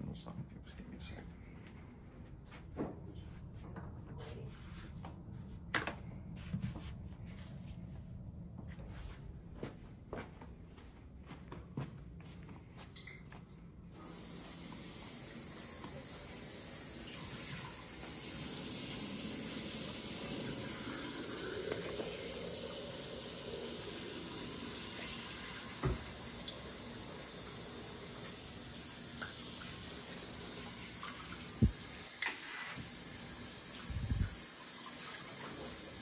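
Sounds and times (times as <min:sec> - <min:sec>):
faucet running into steel sink: 0:14.0 - 0:36.0.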